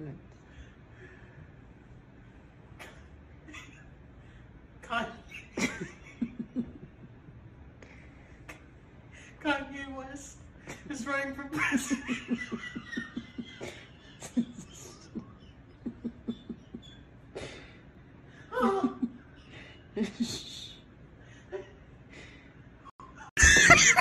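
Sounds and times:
man laughing: 0:23.4 - 0:24.0.

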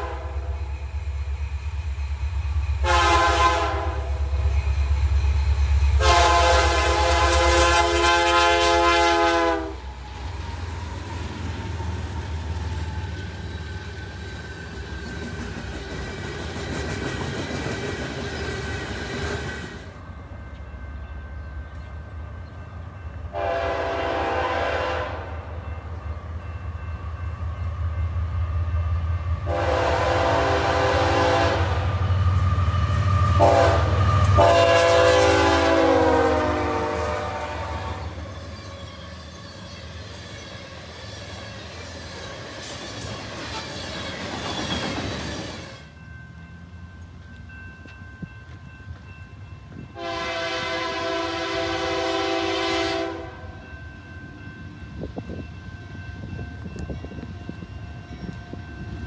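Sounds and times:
locomotive air horn blasts: 0:00.0 - 0:00.6, 0:02.8 - 0:04.3, 0:06.0 - 0:09.9, 0:23.3 - 0:25.4, 0:29.5 - 0:31.9, 0:33.3 - 0:38.2, 0:50.0 - 0:53.6
low rumble of train: 0:00.0 - 0:59.0.

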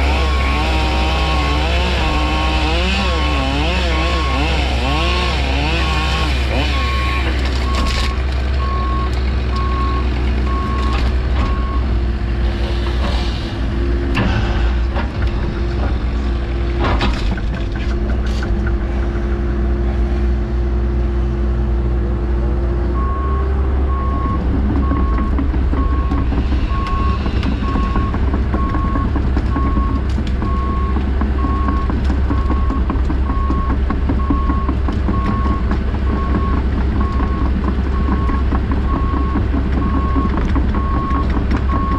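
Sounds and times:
diesel engine running under load: 0:00.0 - 0:41.9
reversing alarm beeping: 0:00.1 - 0:01.8, 0:02.6 - 0:11.9, 0:23.0 - 0:41.9
knocks and clunks: 0:03.3 - 0:20.0, 0:23.0 - 0:41.9.

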